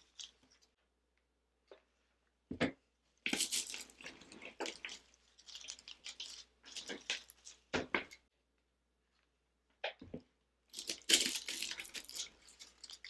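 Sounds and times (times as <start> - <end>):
artificial stems rustling: 3.3 - 7.7, 10.8 - 13.0
dry vine wreath crackling: 10.8 - 13.0.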